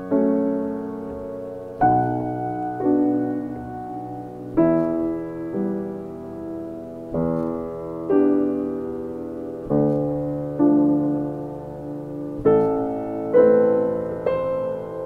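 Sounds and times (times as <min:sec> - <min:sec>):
slow solo piano chords: 0:00.0 - 0:15.0.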